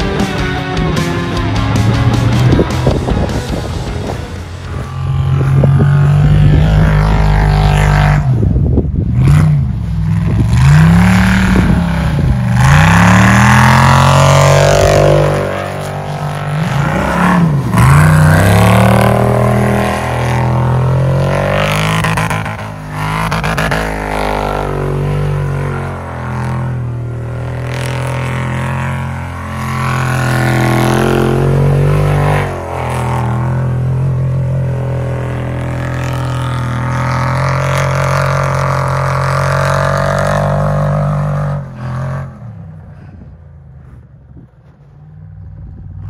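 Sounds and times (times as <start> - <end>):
background music: 0.0 - 7.1
buggy engine revving: 0.0 - 46.0.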